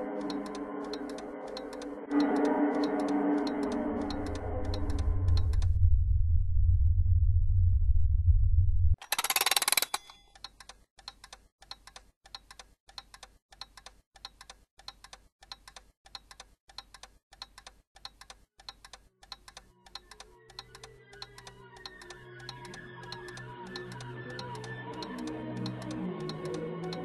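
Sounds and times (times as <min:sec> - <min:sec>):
clock ticking: 0:00.0 - 0:05.7, 0:09.1 - 0:27.0.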